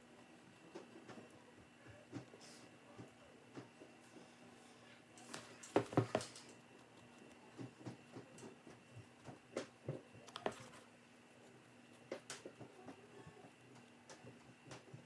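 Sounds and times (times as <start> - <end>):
faint room hum: 0.0 - 15.0.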